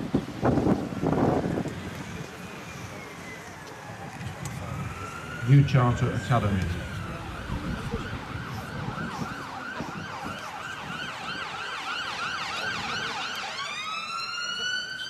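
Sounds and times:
emergency siren yelp and wail: 0.0s - 15.0s.

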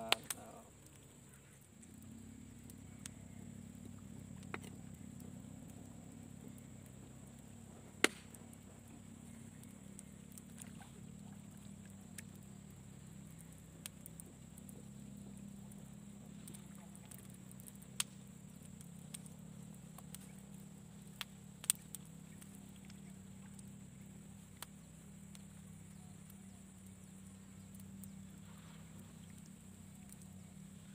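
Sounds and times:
low motor drone: 0.0s - 30.9s.

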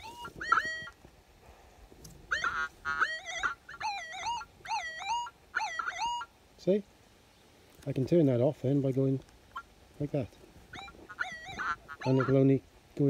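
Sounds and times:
metal detector warbling tones: 0.0s - 0.9s, 2.3s - 6.2s, 10.8s - 12.3s.

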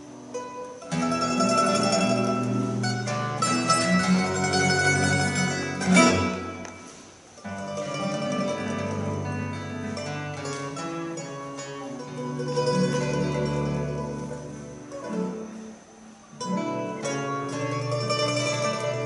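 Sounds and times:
classical guitar: 0.0s - 19.0s
double bass: 0.0s - 19.0s
mandolin: 0.0s - 19.0s.

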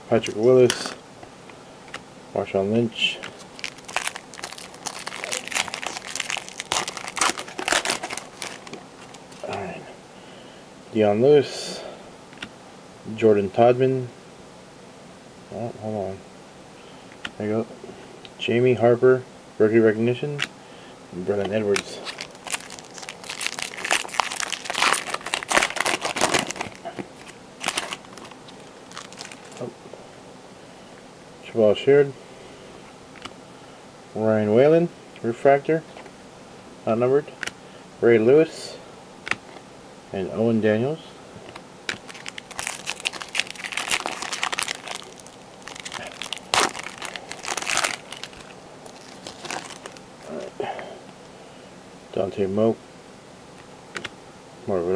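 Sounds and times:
foil wrapper crinkling: 3.1s - 9.6s, 21.4s - 29.7s, 41.9s - 50.5s.

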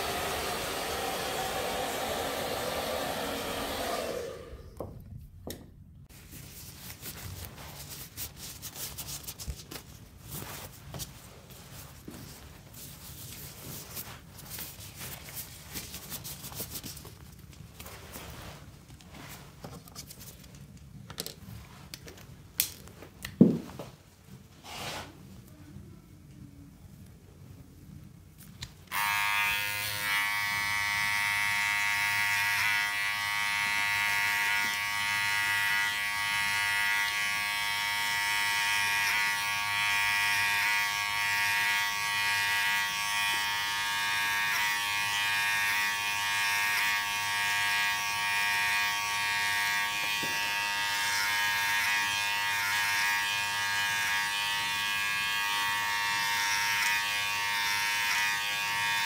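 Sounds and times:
electric hair clippers buzzing: 0.0s - 4.6s, 28.9s - 59.0s.

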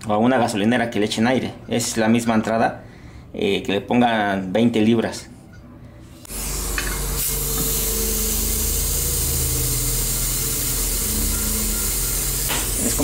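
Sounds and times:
air compressor running: 6.2s - 13.0s.

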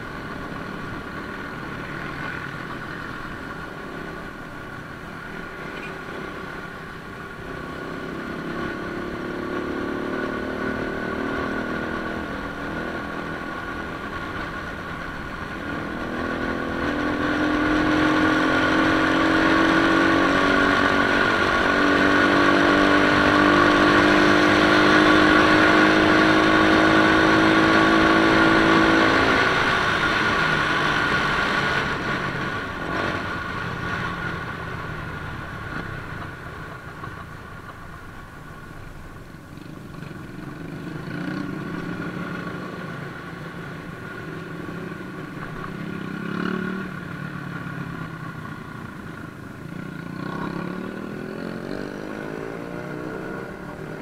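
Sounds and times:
motorcycle engine riding: 0.0s - 54.0s.

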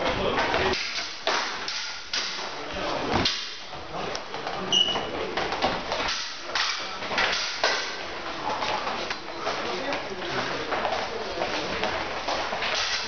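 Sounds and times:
feet stamping and shuffling: 8.0s - 13.0s.

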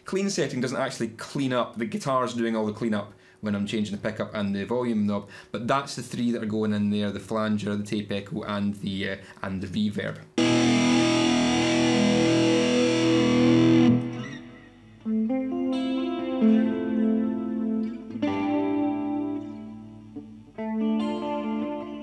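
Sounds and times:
electric guitar with echo and reverb: 10.4s - 22.0s.

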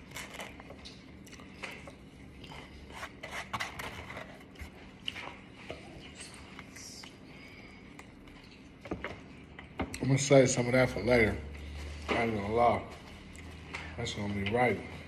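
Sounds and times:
food containers rustling and clicking: 0.0s - 5.9s.

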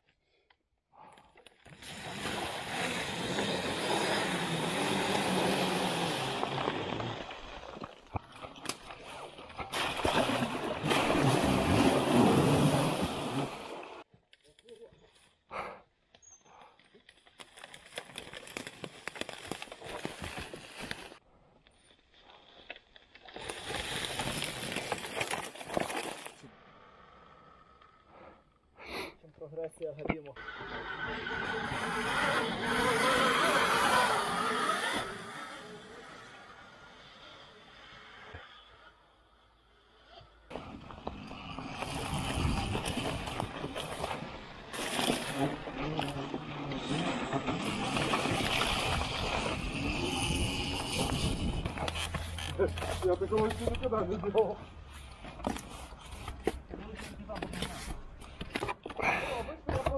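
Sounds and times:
water and mud splashing: 1.7s - 14.0s, 40.5s - 53.9s
dirt bike pushing through brush: 21.8s - 26.4s, 31.8s - 36.2s, 40.5s - 58.2s.

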